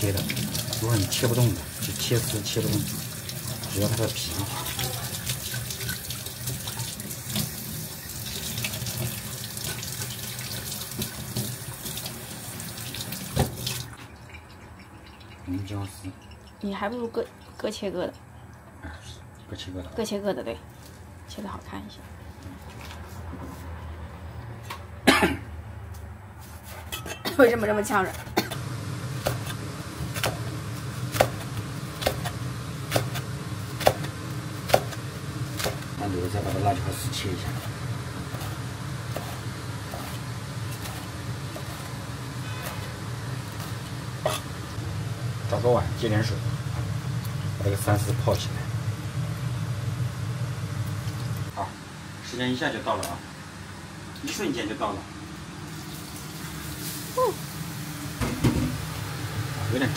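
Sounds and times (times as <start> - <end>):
water running from tap into sink: 0.0 - 16.0.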